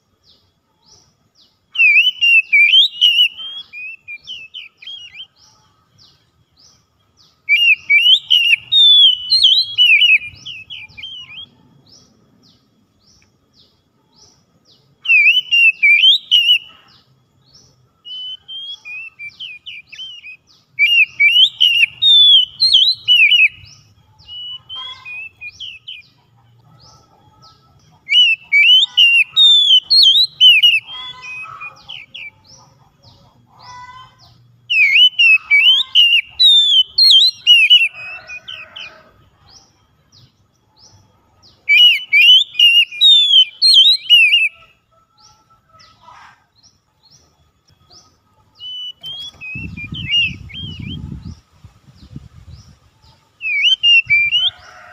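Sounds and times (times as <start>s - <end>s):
bird singing whistled notes: 0.3s - 26.2s, 26.8s - 32.5s, 34.6s - 45.4s, 46.7s - 52.8s, 53.4s - 54.9s.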